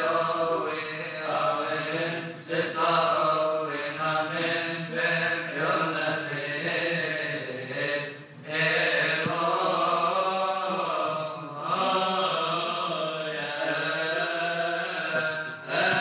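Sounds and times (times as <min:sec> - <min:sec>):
men chanting in unison: 0:00.0 - 0:16.0.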